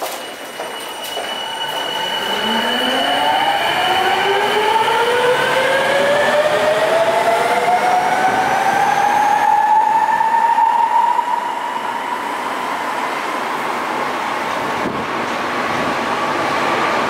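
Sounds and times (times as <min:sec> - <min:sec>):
subway train motors whining: 0:00.0 - 0:17.0.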